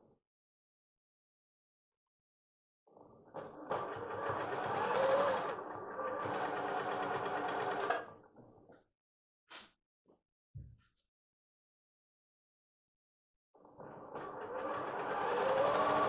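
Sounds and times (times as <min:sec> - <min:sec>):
sewing machine stitching: 0:03.4 - 0:08.2, 0:13.8 - 0:16.0.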